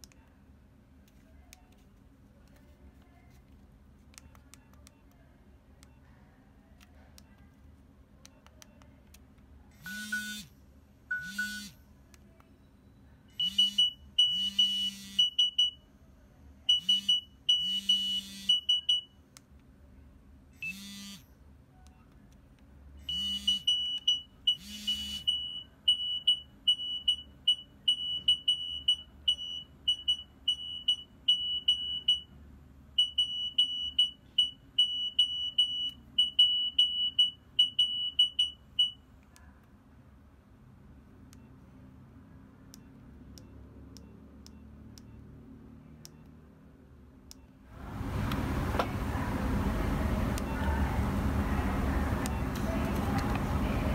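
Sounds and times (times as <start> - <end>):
phone alert beeps: 11.1 - 11.8, 23.0 - 32.3
electronic buzz: 20.6 - 21.3.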